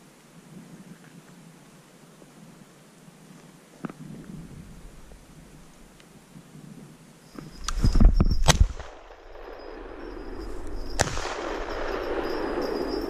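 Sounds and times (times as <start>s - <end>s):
shotgun cracks: 11.0s - 12.6s.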